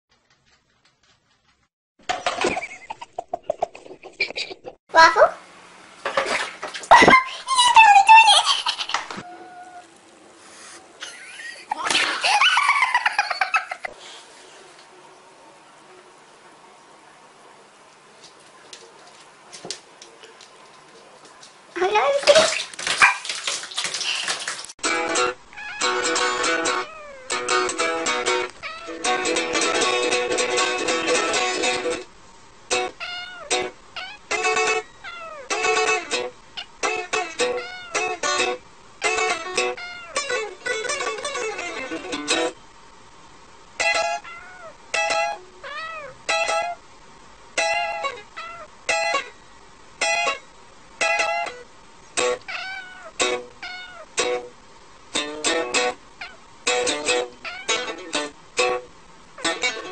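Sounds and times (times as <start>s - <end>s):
cat meowing: 9.2s - 9.9s, 25.5s - 26.0s, 26.7s - 27.4s, 28.6s - 29.2s, 32.9s - 35.6s, 37.4s - 38.2s, 39.7s - 40.4s, 44.0s - 44.8s, 45.6s - 46.2s, 48.1s - 48.7s, 52.3s - 54.1s, 57.4s - 58.0s
plucked-string music: 24.8s - 32.1s, 32.7s - 34.8s, 35.5s - 42.6s, 53.2s - 53.6s, 55.2s - 56.0s, 56.7s - 59.9s.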